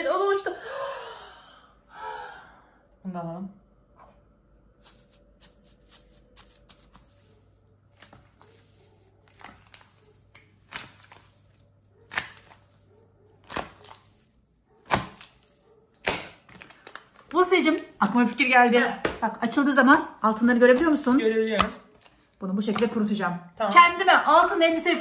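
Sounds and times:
slime crackling and popping: 9.3s - 12.8s, 13.4s - 19.2s.

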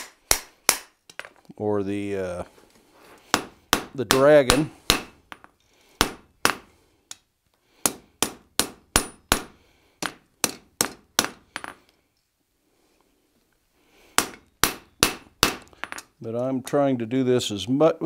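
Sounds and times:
hammer striking steel on anvil: 3.3s - 6.6s.

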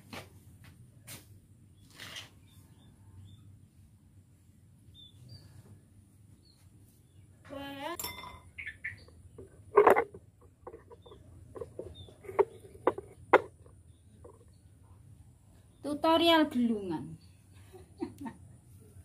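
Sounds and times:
faint bird chirps: 4.9s - 7.8s, 8.4s - 9.3s
sharp clicks and clinks: 8.0s - 8.6s.

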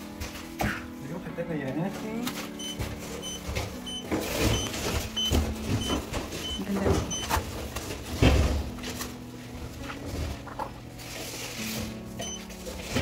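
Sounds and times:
knocks and paper rustling: 1.6s - 13.0s
short high beeps: 2.6s - 7.3s.

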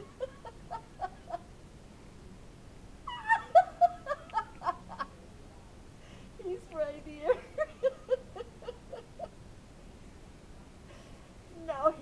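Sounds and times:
woman laughing: 0.0s - 1.4s, 3.1s - 5.1s, 7.2s - 9.3s.

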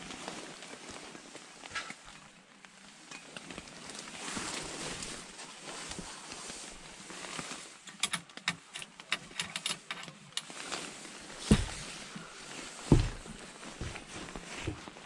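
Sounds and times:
rustling handling noise: 0.0s - 15.0s
footsteps on wooden deck: 11.1s - 15.0s
heavy thump: 11.4s - 11.9s, 12.8s - 14.0s.

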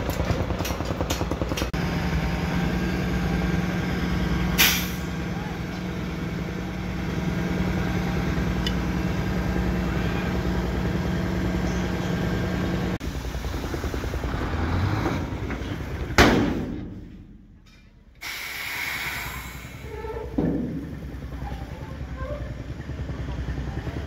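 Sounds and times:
dump truck engine running: 0.0s - 24.0s
loud sharp bang: 16.2s - 17.6s.

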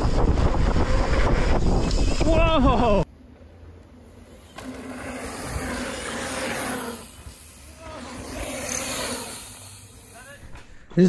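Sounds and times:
bike tyres rushing on dirt: 0.0s - 3.0s, 4.1s - 10.8s
wind noise: 0.0s - 3.0s, 5.2s - 6.1s.

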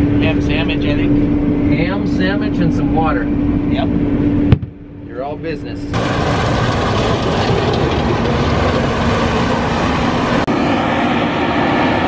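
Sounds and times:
combine harvester running: 6.0s - 12.0s.

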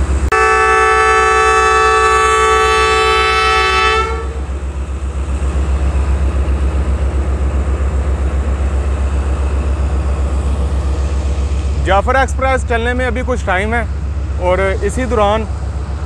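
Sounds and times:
locomotive air horn chord: 0.3s - 4.5s
diesel engine idling: 3.6s - 16.0s.

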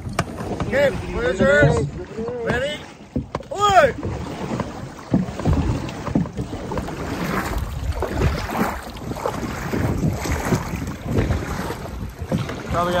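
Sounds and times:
paddles splashing through water: 0.0s - 13.0s
wind on microphone: 3.9s - 13.0s.

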